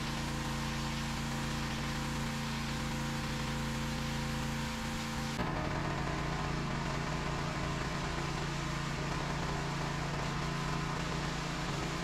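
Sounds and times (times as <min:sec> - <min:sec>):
water jet hissing on concrete: 0:00.0 - 0:05.4, 0:07.9 - 0:12.0
pressure washer engine running: 0:00.0 - 0:12.0.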